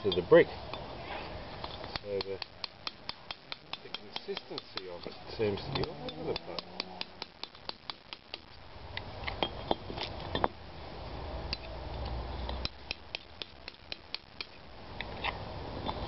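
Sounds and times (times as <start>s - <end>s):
hand tool tapping brick: 1.9s - 8.4s.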